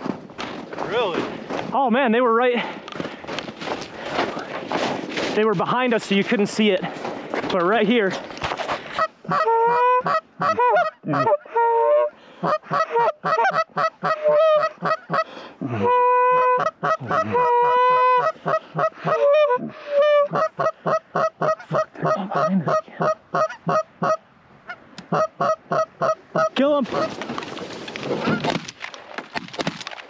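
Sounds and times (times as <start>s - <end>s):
goose honking: 8.9s - 27.2s.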